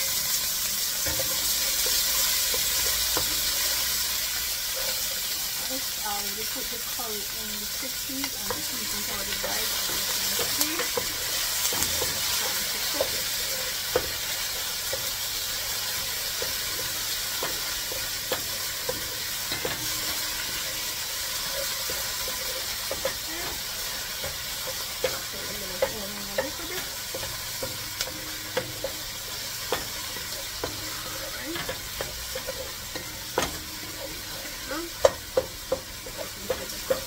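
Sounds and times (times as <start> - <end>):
onion sizzling in a pot: 0.0 - 37.0
wooden spatula scraping a pot: 8.2 - 37.0.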